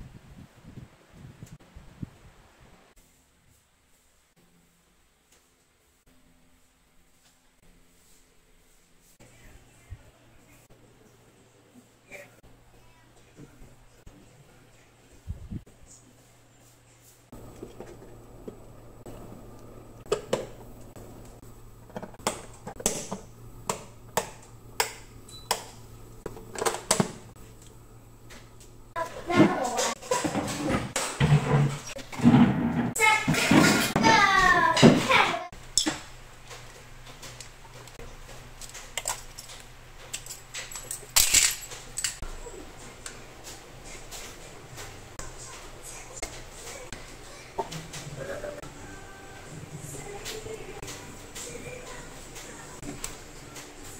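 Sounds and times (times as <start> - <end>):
clatter of small hard parts: 38.6 - 42.2.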